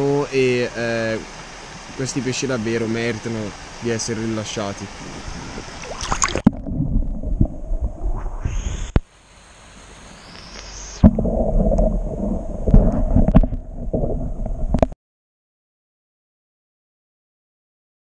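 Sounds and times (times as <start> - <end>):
muffled underwater stream gurgling: 0.1 - 9.0, 10.4 - 15.0
sharp underwater knocks: 5.9 - 7.6, 11.0 - 15.0.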